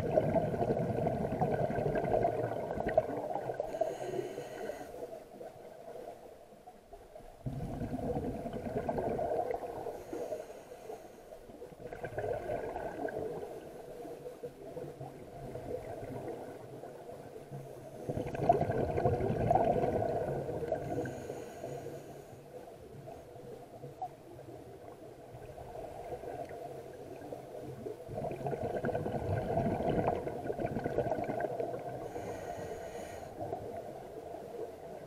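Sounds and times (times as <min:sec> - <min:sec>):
exhaled bubbles gurgling underwater: 0:00.0 - 0:35.0
regulator hissing inhalations: 0:03.7 - 0:05.1, 0:09.9 - 0:11.4, 0:20.8 - 0:22.4, 0:32.0 - 0:33.4.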